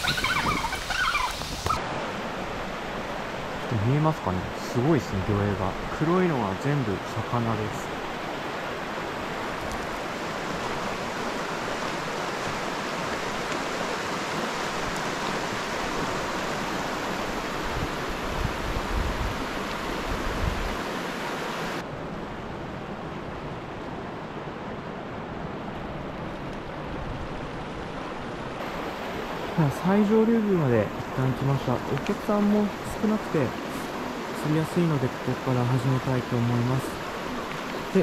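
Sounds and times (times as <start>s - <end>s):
river rushing over stones: 0.0s - 22.0s, 23.7s - 38.0s.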